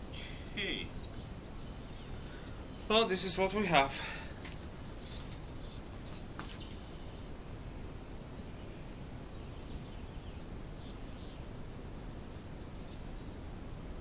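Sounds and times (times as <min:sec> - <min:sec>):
low background noise: 0:00.0 - 0:14.0
faint bird chirps: 0:06.6 - 0:07.4.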